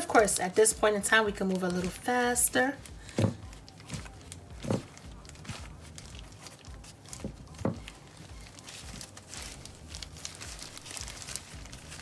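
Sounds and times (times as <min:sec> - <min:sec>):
plastic gloves crinkling: 0:00.0 - 0:12.0
scratchy rustles: 0:03.1 - 0:12.0.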